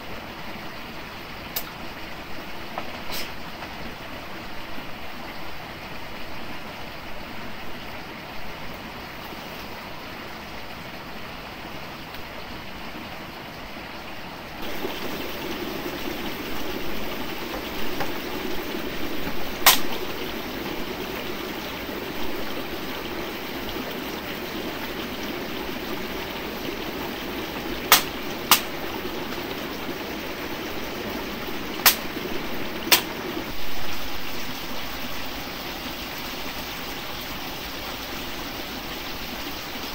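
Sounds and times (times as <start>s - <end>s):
stream water running: 0.0s - 39.9s
sharp clicks or knocks: 19.6s - 20.1s, 27.9s - 28.7s.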